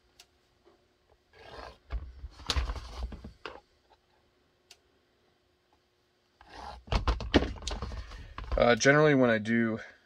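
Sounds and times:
plastic holster rubbing and scraping: 0:01.3 - 0:03.6, 0:06.4 - 0:08.6.

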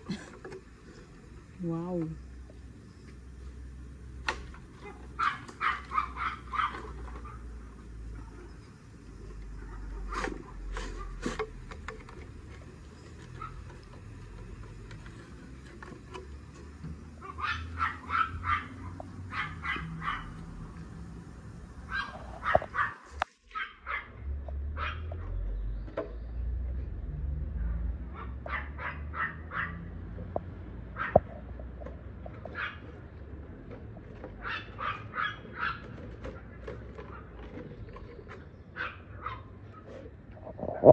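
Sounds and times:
dog barking: 0:04.8 - 0:07.5, 0:17.2 - 0:20.4, 0:21.9 - 0:24.2, 0:24.8 - 0:25.2, 0:28.1 - 0:29.9, 0:34.4 - 0:35.8
steady low rumble: 0:40.4 - 0:40.9.

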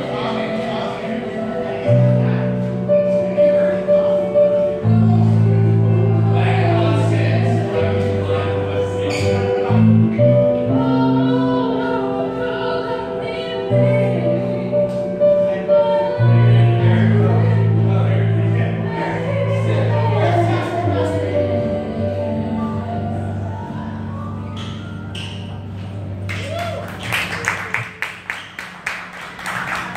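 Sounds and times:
electric keyboard chords: 0:00.0 - 0:26.6
woman singing: 0:10.4 - 0:18.2, 0:18.8 - 0:23.8.

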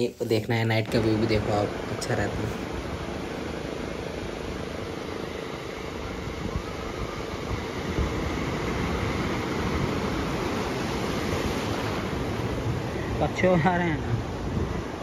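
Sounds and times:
ocean surf breaking: 0:00.8 - 0:15.0
wind buffeting microphone: 0:05.9 - 0:15.0.

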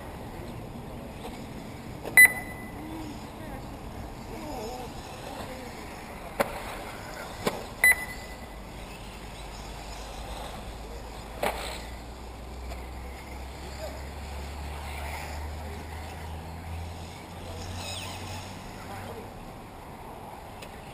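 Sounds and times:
short high electronic beep: 0:02.2 - 0:02.8, 0:07.8 - 0:08.4.

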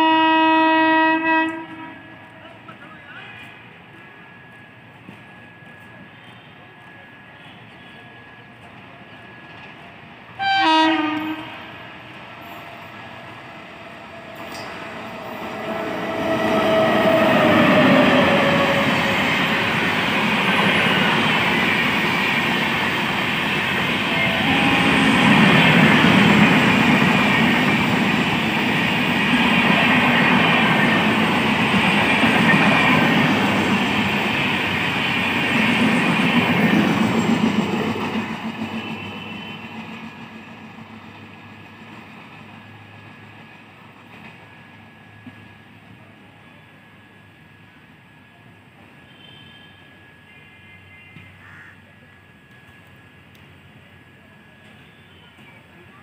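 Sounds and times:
train horn: 0:00.0 - 0:02.3, 0:10.4 - 0:12.1, 0:15.6 - 0:19.4, 0:24.0 - 0:26.8, 0:38.8 - 0:39.8, 0:49.0 - 0:50.1
train rumbling over rails: 0:00.0 - 0:56.0.

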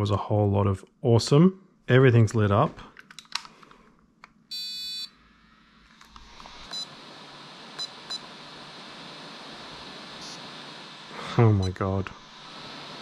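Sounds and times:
electronic beeps: 0:04.5 - 0:05.2
steady hiss: 0:05.5 - 0:13.0.

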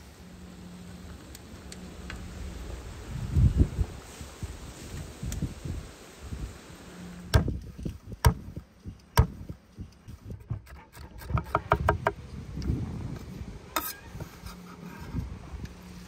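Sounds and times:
knife chopping on wooden board: 0:09.2 - 0:09.4, 0:10.4 - 0:12.2.

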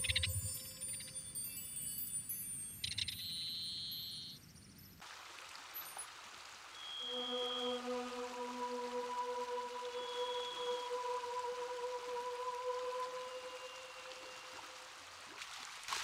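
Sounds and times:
ambient music with chiming tones: 0:00.0 - 0:05.0, 0:06.8 - 0:14.9
river rapids rushing: 0:05.0 - 0:15.3.

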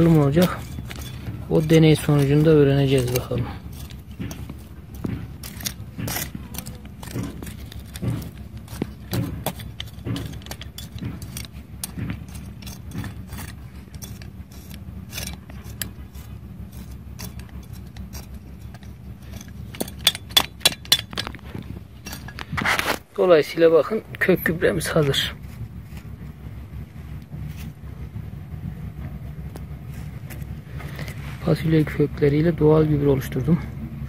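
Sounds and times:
pebbles clicking: 0:00.0 - 0:16.0
metal trowel scraping stony soil: 0:00.0 - 0:26.4, 0:27.2 - 0:28.1, 0:29.5 - 0:33.4.

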